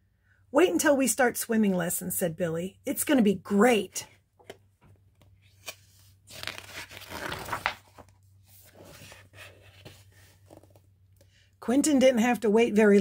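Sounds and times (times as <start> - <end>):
paper page turning: 5.4 - 10.8.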